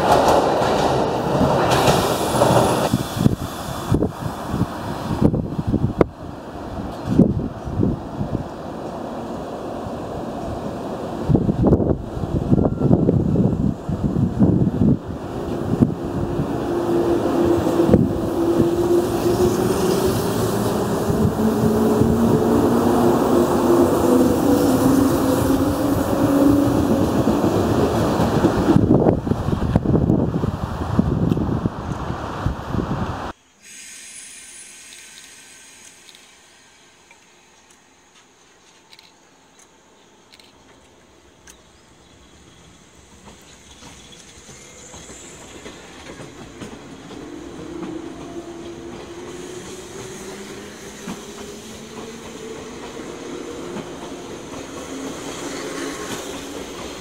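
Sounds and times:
electric train rumble: 0.0 - 38.2, 40.3 - 57.0
wind on microphone: 2.8 - 8.6, 11.2 - 33.3.

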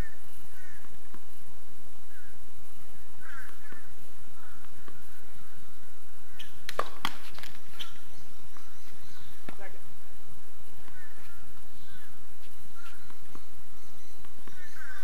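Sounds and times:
birds calling: 0.0 - 15.0
racquet striking tennis ball: 6.7 - 7.5.

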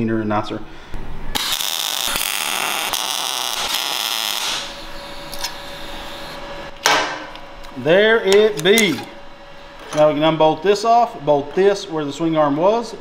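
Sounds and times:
welder arc crackling: 1.4 - 6.7.

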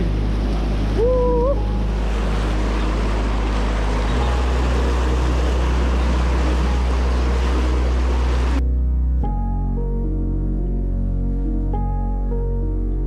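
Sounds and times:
rushing whitewater rapids: 0.0 - 8.6.

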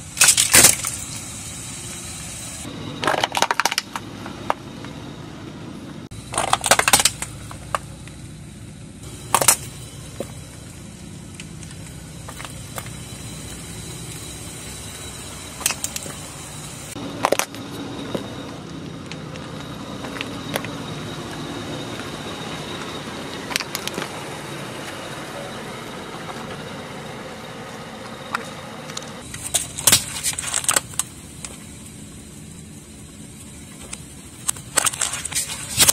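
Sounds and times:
steady low rumble: 0.0 - 35.9
plastic cracking under car tyre: 6.3 - 7.8.

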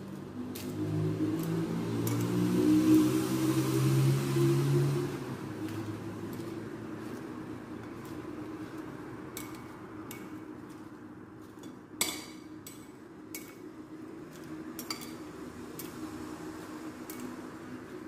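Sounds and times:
utensils clinking on glass bowl: 14.4 - 15.2.

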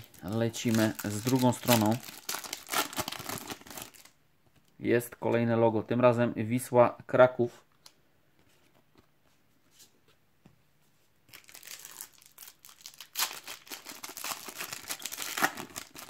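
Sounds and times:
foil pack tearing and crinkling: 0.0 - 4.1, 11.3 - 16.0.

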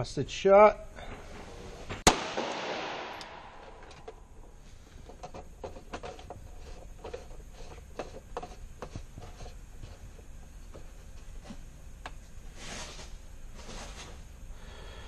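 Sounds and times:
pistol shot echo: 2.0 - 3.8.

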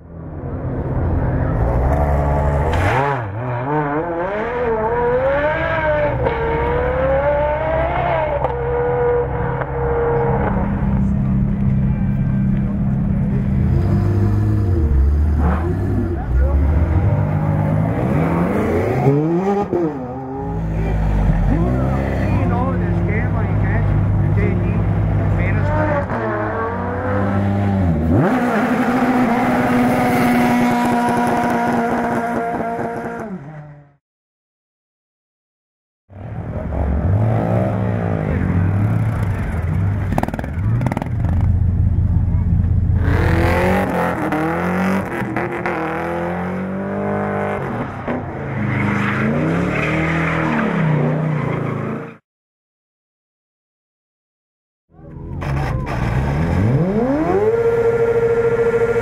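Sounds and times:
race car engine revving: 1.2 - 33.9, 36.2 - 52.2, 55.3 - 59.0.

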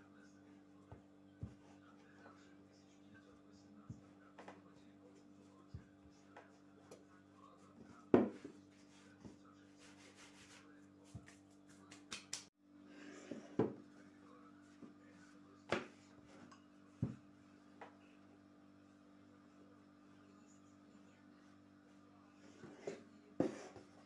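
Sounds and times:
rolling pin rubbing dough: 3.9 - 11.7.

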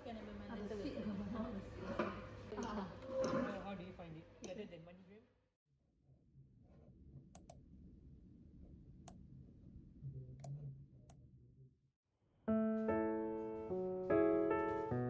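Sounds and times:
background piano music: 12.5 - 15.0.

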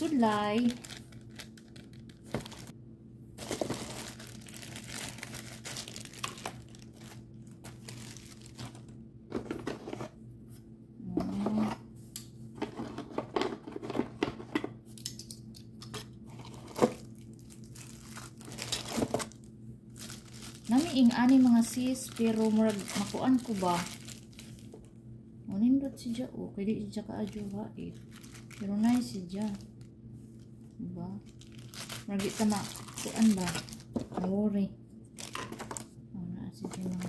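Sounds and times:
plastic packaging crinkling: 0.0 - 2.7, 3.4 - 8.9, 16.4 - 24.9, 27.2 - 29.9, 31.2 - 34.2, 35.1 - 35.9, 36.7 - 37.0
low steady hum: 0.0 - 37.0.

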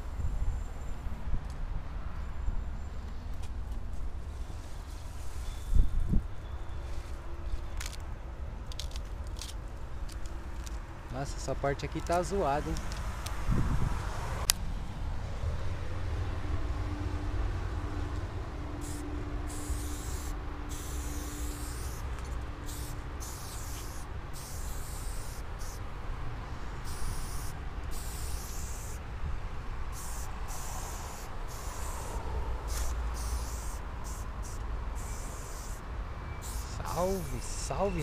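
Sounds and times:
spray paint can hissing: 18.8 - 25.9, 26.8 - 29.0, 29.9 - 38.0.

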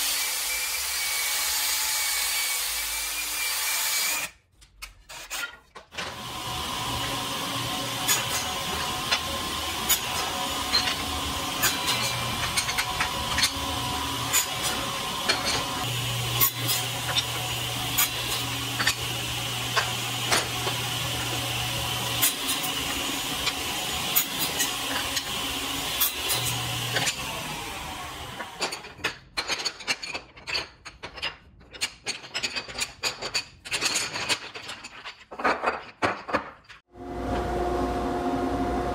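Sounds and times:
saw cutting wood: 0.0 - 4.4, 5.1 - 28.8
table saw motor hum: 6.0 - 28.8, 37.0 - 38.9
wooden pieces clacking: 28.4 - 36.8.

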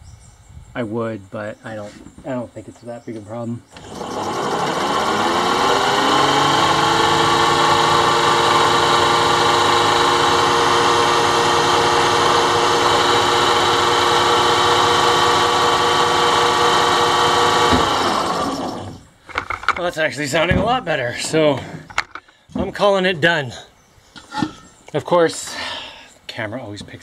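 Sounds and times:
electric motor whining: 3.7 - 19.1.

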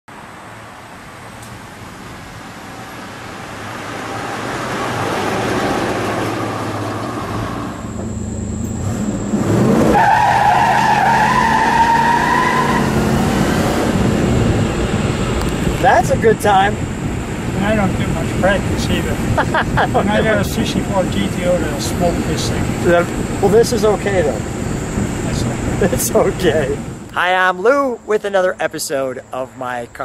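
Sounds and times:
car engine accelerating: 2.3 - 27.1
tyres squealing: 9.8 - 13.2.

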